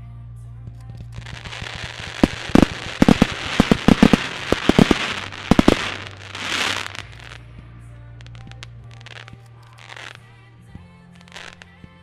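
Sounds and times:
fireworks bangs: 1.1s - 7.4s
fireworks hissing: 1.1s - 7.4s, 8.2s - 10.2s.

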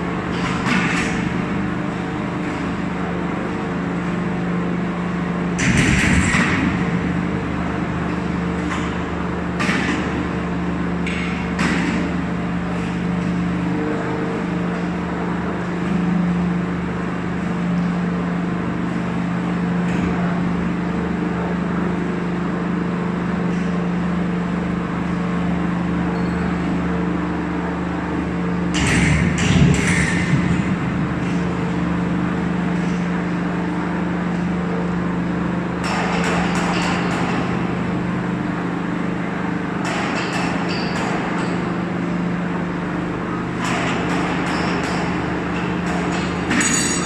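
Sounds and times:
metallic clanking and scraping: 46.4s - 47.0s.

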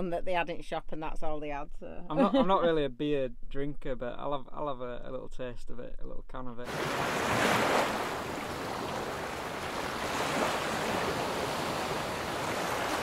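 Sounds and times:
waves breaking on pebbles: 6.7s - 13.0s.

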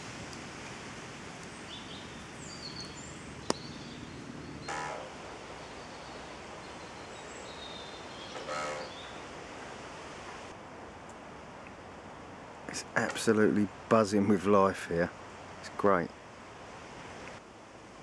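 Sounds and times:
outdoor hiss: 0.0s - 18.0s
harsh bird calls: 1.6s - 9.3s.

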